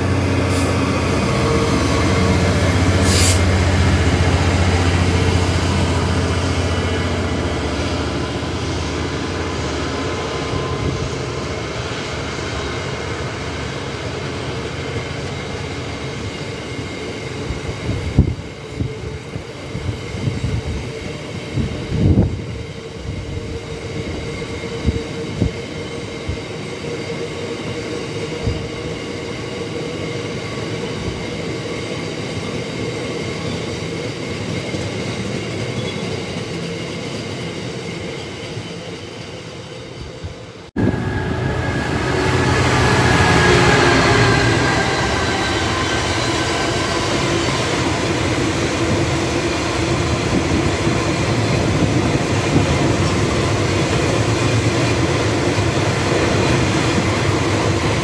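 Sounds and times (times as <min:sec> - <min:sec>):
loud train noise: 0:00.0 - 0:58.0
steel wheels rumbling on rail: 0:00.0 - 0:58.0
whining tones: 0:40.8 - 0:48.2.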